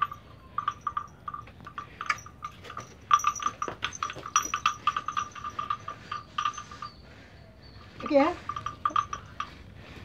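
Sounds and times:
cow chewing on wooden stick: 0:00.0 - 0:07.0.

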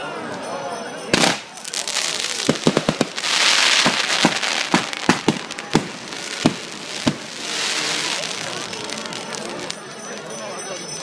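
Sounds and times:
fireworks bangs: 0:01.2 - 0:09.8
fireworks rushing hiss: 0:01.2 - 0:09.8.

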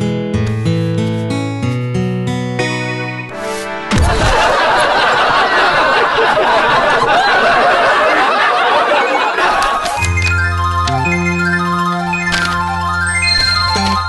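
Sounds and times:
music: 0:00.0 - 0:04.6, 0:10.0 - 0:14.0
thump: 0:03.9 - 0:04.4
canned laughter: 0:04.0 - 0:10.0.

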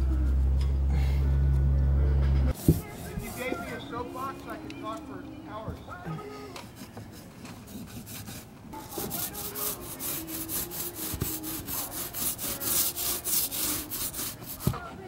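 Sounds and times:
paint roller rolling: 0:02.5 - 0:04.5, 0:06.8 - 0:14.9.

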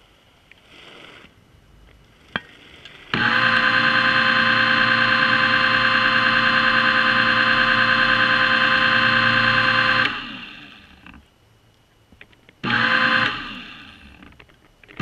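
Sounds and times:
underwater motor whine: 0:03.1 - 0:11.2, 0:12.6 - 0:14.3.

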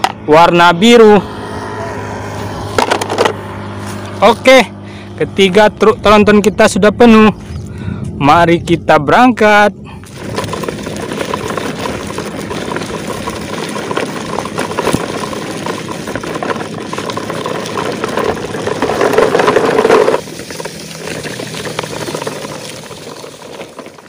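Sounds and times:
toy trucks rattling over gravel: 0:01.5 - 0:04.7, 0:10.0 - 0:24.0.

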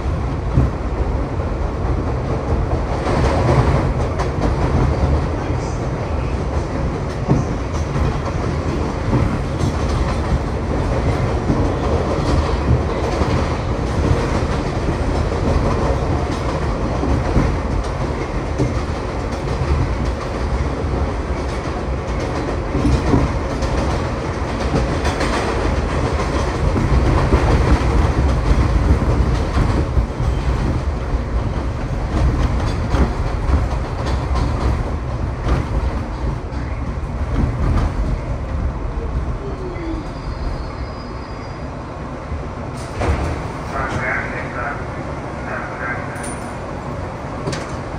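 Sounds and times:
train low rumble: 0:00.0 - 0:47.9
wheels clacking over rail joints: 0:00.4 - 0:38.7.

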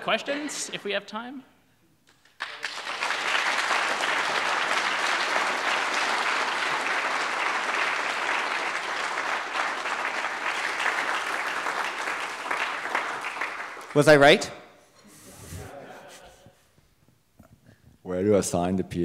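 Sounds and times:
audience applauding: 0:02.1 - 0:14.3.

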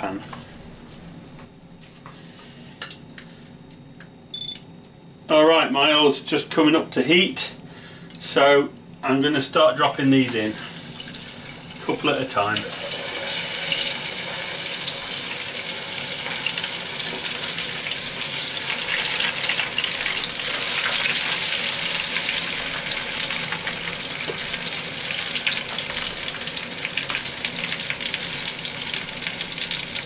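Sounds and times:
chips deep-frying in hot oil: 0:10.2 - 0:30.0.

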